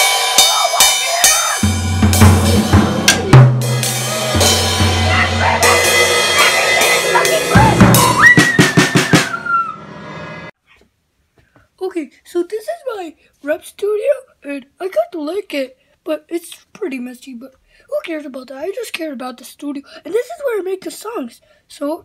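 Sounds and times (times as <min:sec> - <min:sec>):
cymbal hits: 0:00.0 - 0:09.2
drum strikes: 0:00.0 - 0:09.7.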